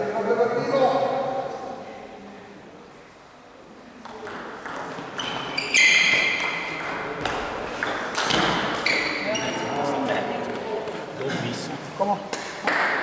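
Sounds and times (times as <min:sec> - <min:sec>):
loud squeak: 0:05.2 - 0:06.6, 0:08.5 - 0:09.8.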